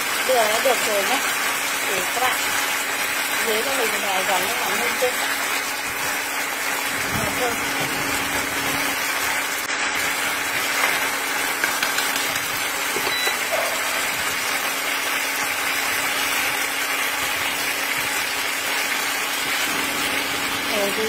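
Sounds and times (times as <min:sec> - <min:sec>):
sauce bubbling and sizzling: 0:00.0 - 0:21.0
chopsticks tapping pan: 0:11.6 - 0:13.4.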